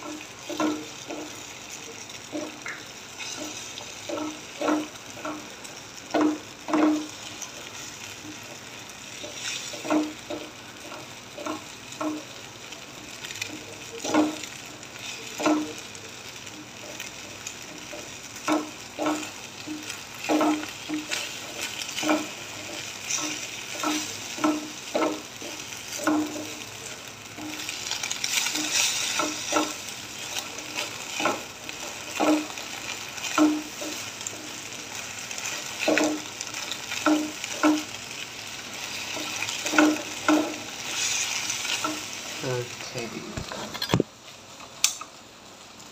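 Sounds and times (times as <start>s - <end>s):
spatula scraping a pan: 0.0s - 42.8s
eggs sizzling in a frying pan: 0.0s - 45.9s.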